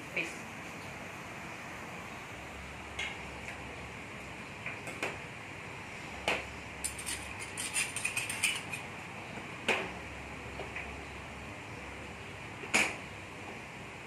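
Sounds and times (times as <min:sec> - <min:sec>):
steady low hum: 0:00.0 - 0:14.0
bowls and ladle clinking on steel: 0:06.9 - 0:08.8.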